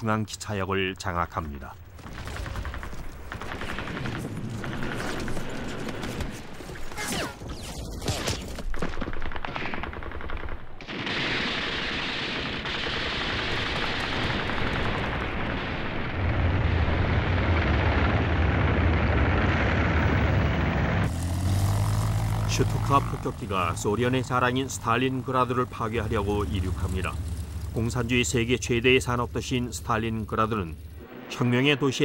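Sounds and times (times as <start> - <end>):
deep rumble: 14.3 - 31.8.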